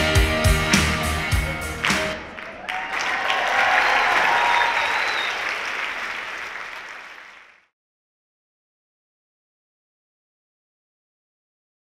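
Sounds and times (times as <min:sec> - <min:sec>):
audience applauding: 0:01.7 - 0:07.7.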